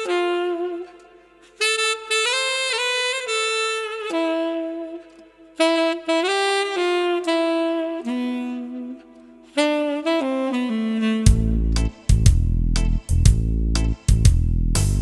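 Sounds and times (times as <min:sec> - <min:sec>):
solo saxophone melody: 0:00.0 - 0:12.5.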